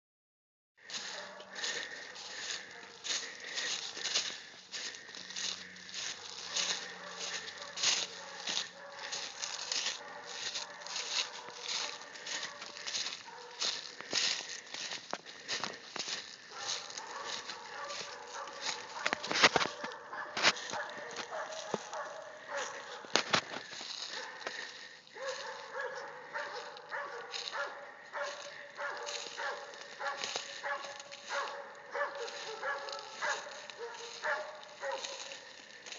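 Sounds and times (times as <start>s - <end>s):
dogs barking: 0.8s - 35.9s
footsteps crunching dry leaves: 0.8s - 35.9s.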